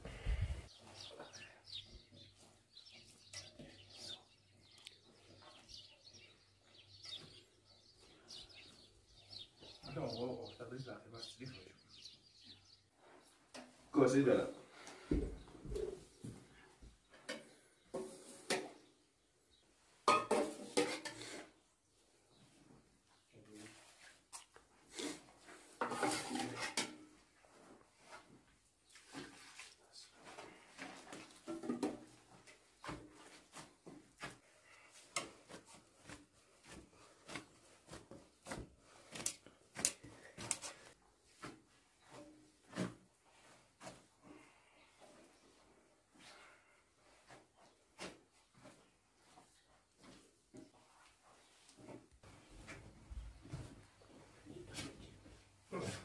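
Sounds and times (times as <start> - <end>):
kitchenware clinking and clattering: 20.1 - 21.3, 25.8 - 27.1
hands kneading bread dough: 32.5 - 56.0.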